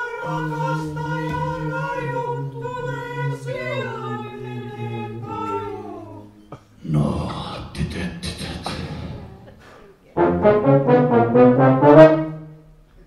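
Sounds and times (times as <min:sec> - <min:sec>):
brass ensemble playing chords: 0:10.2 - 0:12.9.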